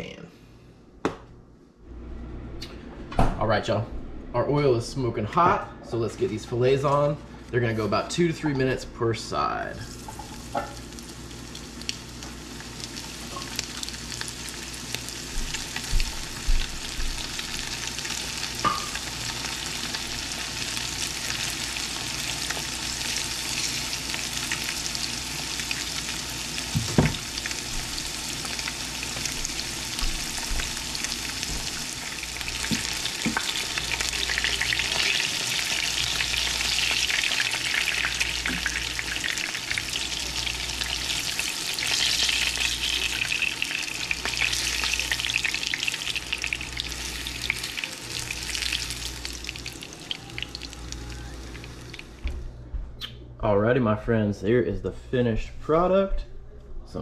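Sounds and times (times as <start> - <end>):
fish sizzling in oil: 9.9 - 52.2.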